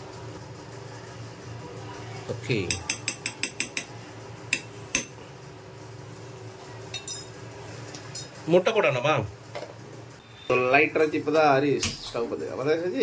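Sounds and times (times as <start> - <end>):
dishes and utensils clinking: 6.9 - 7.4.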